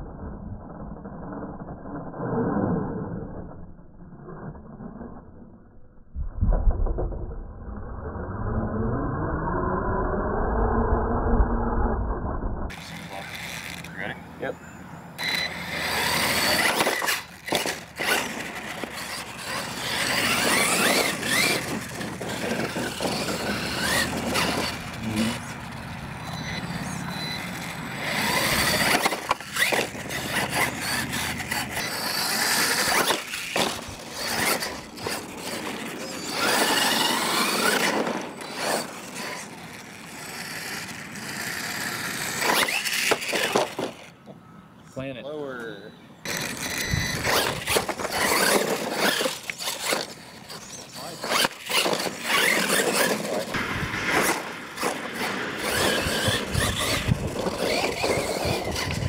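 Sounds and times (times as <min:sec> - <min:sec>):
electric motor and drivetrain whine: 0:06.8 - 0:44.5, 0:46.2 - 0:59.0
tyres scrabbling on dirt: 0:15.2 - 0:44.1, 0:46.2 - 0:59.0.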